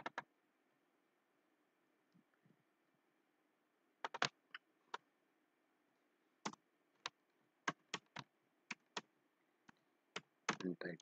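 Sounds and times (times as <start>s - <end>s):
faint computer keyboard keystrokes: 0.0s - 0.3s, 4.0s - 5.0s, 6.4s - 10.8s.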